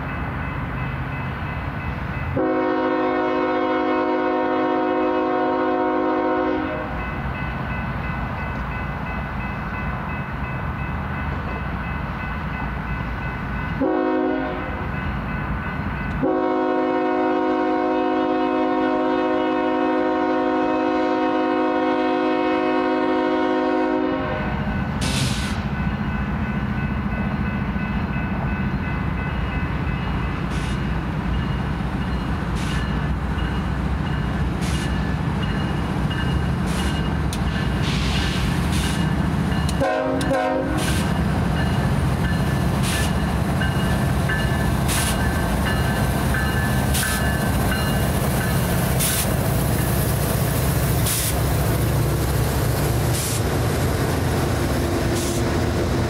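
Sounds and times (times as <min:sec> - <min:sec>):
diesel locomotive engine rumble: 0:00.0 - 0:56.0
train horn blast: 0:02.4 - 0:07.0, 0:13.8 - 0:14.8, 0:16.1 - 0:24.7, 0:39.7 - 0:41.2.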